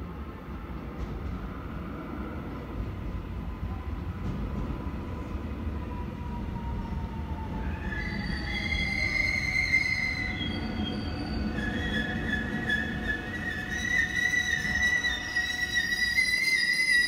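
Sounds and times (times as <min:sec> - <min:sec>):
electric train rumbling on track: 0:00.0 - 0:17.0
wheel squeal: 0:07.8 - 0:17.0.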